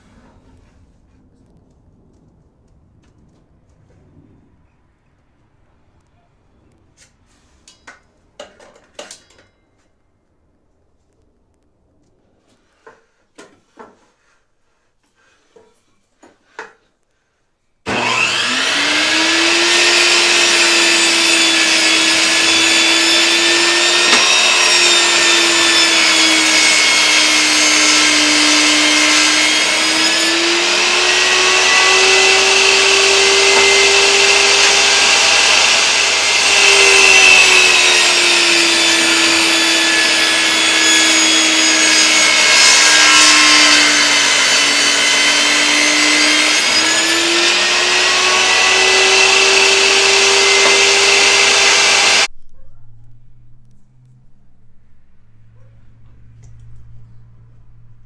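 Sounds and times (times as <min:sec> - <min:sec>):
saw cutting boards: 0:17.9 - 0:52.3
table saw motor whining: 0:17.9 - 0:52.3
boards knocking: 0:31.5 - 0:42.7, 0:48.7 - 0:51.9.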